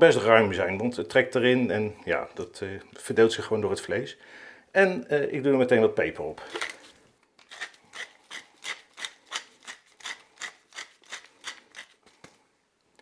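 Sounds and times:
pepper mill grinding: 7.4s - 12.1s.

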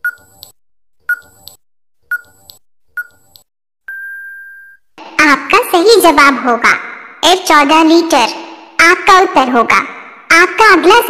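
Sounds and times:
short ticking beeps: 0.0s - 4.8s.

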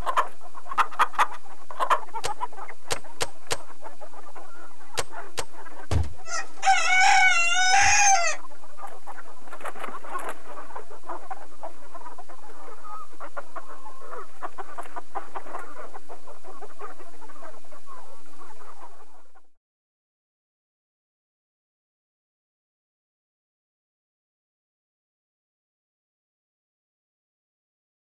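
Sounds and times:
chickens clucking: 0.0s - 19.6s
rooster crowing: 5.9s - 8.5s.

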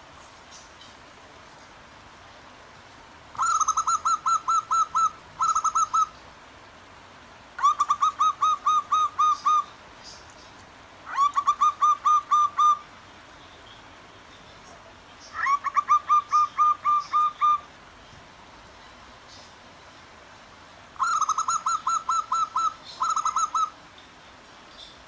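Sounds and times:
doves cooing: 3.4s - 6.2s, 7.6s - 9.8s, 11.1s - 12.8s, 15.4s - 17.7s, 21.0s - 23.8s.

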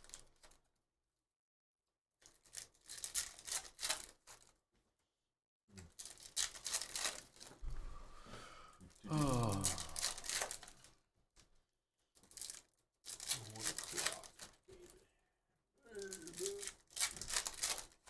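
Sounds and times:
foil wrappers tearing and crinkling: 2.2s - 4.5s, 5.8s - 7.6s, 9.1s - 10.9s, 12.2s - 14.8s, 15.9s - 18.0s.

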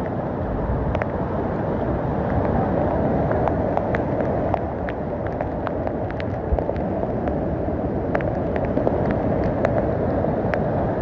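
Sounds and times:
waterfall rushing over rocks: 0.0s - 11.0s.

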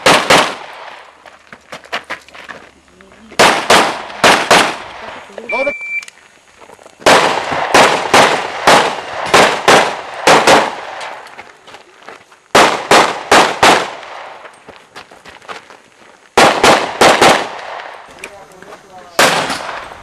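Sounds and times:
handgun shots echoing: 19.2s - 19.9s.

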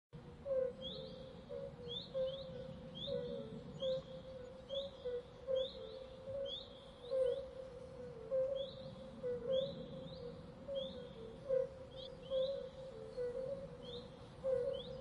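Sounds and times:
lower repeated bird notes: 0.2s - 15.0s.

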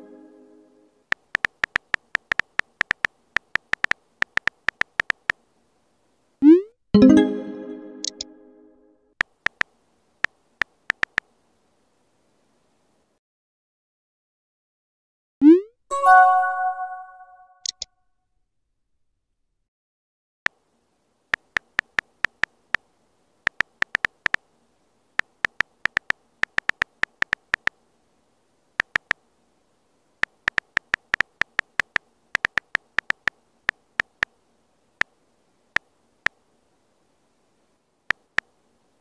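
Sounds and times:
phone keyboard clicks: 1.1s - 5.4s, 9.2s - 11.3s, 21.3s - 22.8s, 23.5s - 24.4s, 25.2s - 27.7s, 28.8s - 29.2s, 30.2s - 34.3s, 38.1s - 38.5s.

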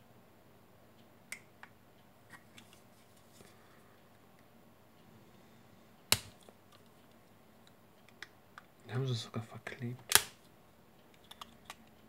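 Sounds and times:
faint clicks and scrapes: 2.3s - 3.6s
sharp loud plastic click: 10.0s - 10.4s.

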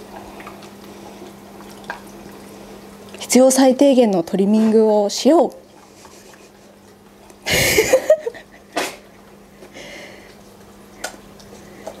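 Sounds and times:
breathy laughter: 7.5s - 9.1s.

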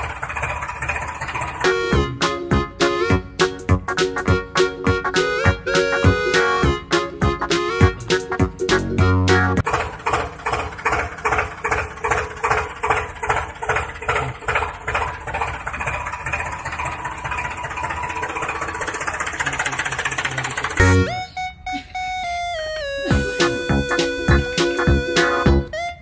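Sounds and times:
tractor engine running: 0.0s - 26.0s.

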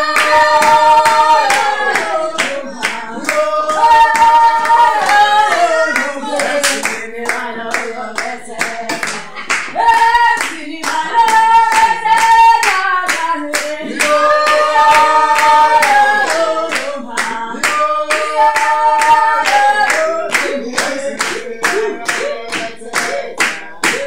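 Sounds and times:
person singing: 0.0s - 24.0s
rhythmic handclapping: 0.0s - 24.0s.

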